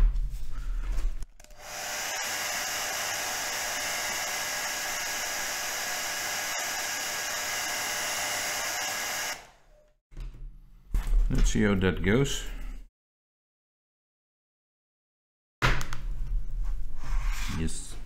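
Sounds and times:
hot-air blower running: 1.4 - 9.6.

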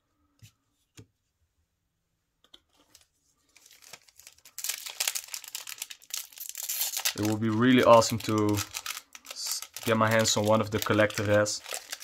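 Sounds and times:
foil wrapper crinkling: 2.9 - 12.0.

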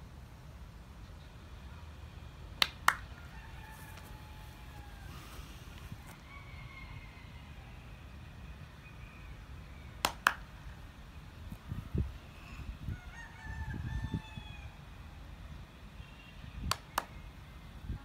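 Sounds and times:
rooster crowing: 3.1 - 8.0, 12.8 - 14.8.

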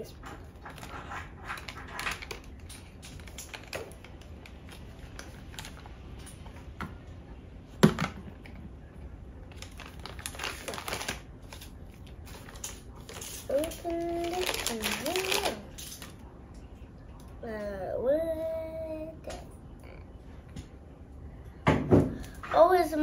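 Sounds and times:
plastic wrapper crinkling: 0.5 - 6.1, 9.5 - 16.2.

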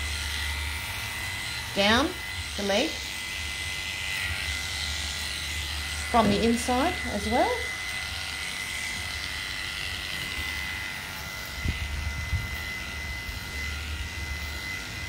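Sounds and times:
electric clippers whining: 0.0 - 15.0.

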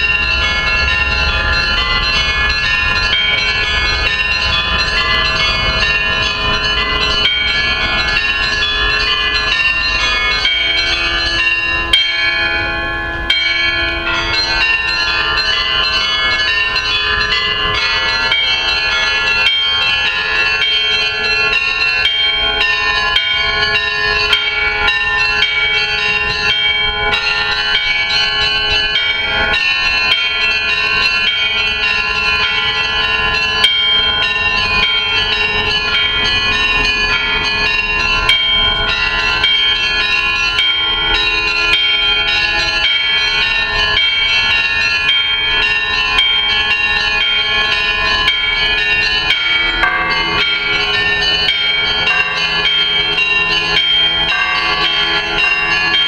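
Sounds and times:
church bells pealing: 0.0 - 56.0.

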